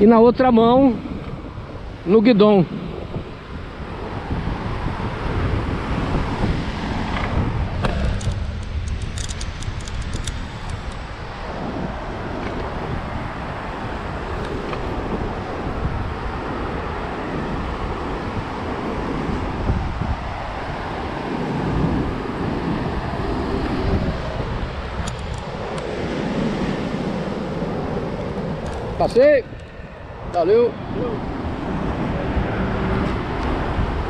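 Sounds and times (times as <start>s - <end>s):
road traffic: 0.0s - 34.0s
wind buffeting microphone: 0.0s - 34.0s.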